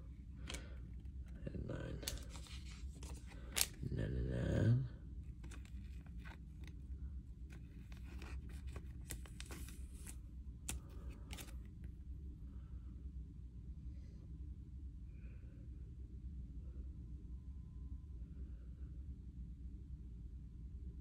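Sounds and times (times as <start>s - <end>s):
cards and packaging rustling: 0.3s - 3.9s, 5.2s - 12.0s.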